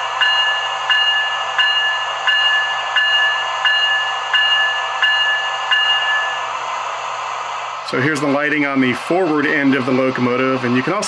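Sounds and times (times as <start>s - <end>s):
electronic bell ringing: 0.0s - 6.4s.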